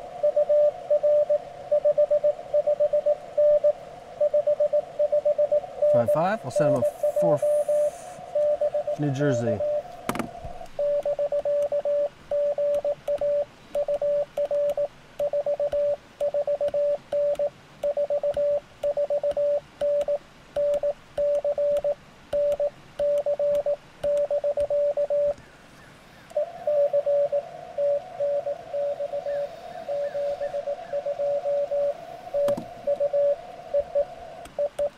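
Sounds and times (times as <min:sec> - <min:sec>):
higher noisier morse tone reply: 0:00.0 - 0:10.0, 0:26.4 - 0:34.9
morse code tone: 0:00.2 - 0:09.9, 0:10.8 - 0:25.4, 0:26.4 - 0:34.9.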